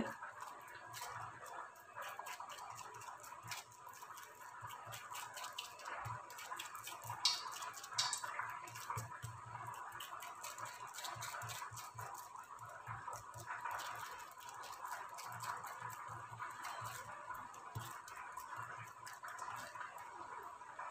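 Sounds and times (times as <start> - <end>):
dough patted by hand: 0.0 - 19.9
food frying in oil crackle: 0.0 - 20.9.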